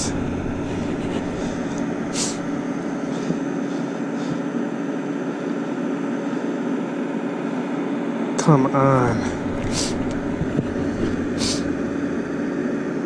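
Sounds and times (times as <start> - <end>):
mechanical hum: 0.0 - 13.0.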